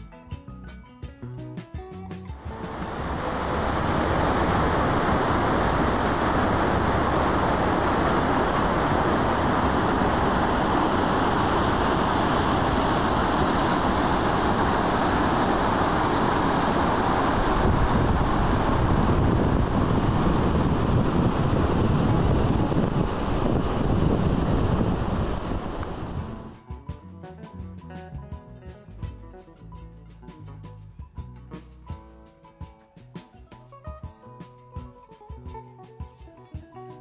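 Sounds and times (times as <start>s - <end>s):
deep rumble: 2.4s - 26.6s
river rushing through rapids: 2.4s - 26.6s.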